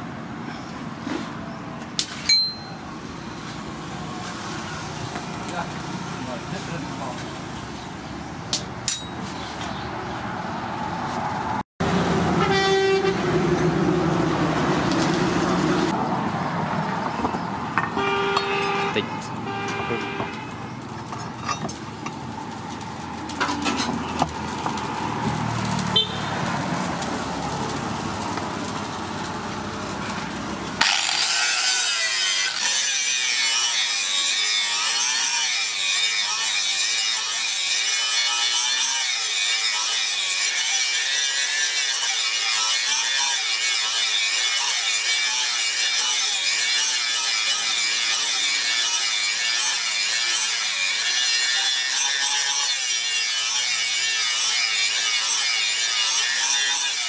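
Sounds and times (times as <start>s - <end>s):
metal scraping on wood: 17.3s - 24.8s, 30.8s - 57.0s
angle grinder grinding steel: 30.8s - 57.0s.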